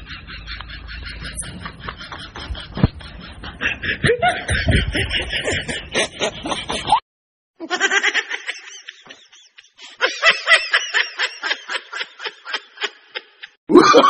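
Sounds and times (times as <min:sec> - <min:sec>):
person snickering: 0:13.7 - 0:14.0.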